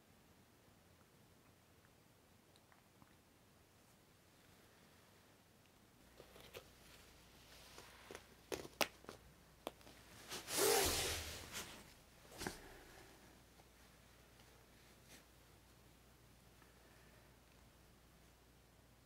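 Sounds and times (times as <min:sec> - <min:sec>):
fabric rustling: 0:06.1 - 0:15.3.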